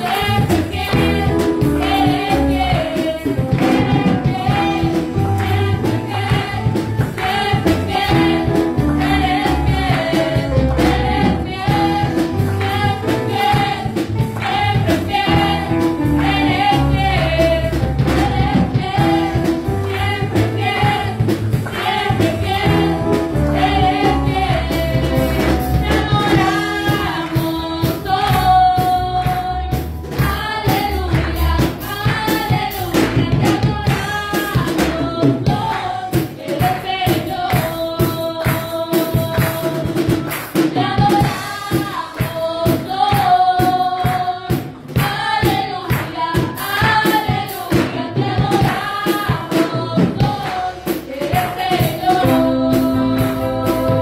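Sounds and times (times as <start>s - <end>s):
steady percussion beat: 0.0s - 54.0s
voices singing worship song: 0.0s - 54.0s
band with deep bass: 0.2s - 35.6s, 52.1s - 54.0s.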